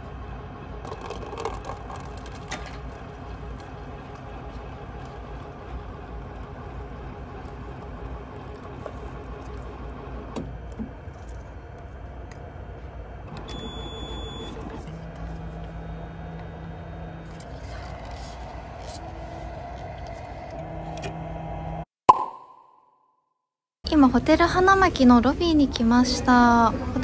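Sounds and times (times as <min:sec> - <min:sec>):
coffee machine humming: 0:00.0 - 0:21.8
coffee pouring into paper cup: 0:00.8 - 0:04.2.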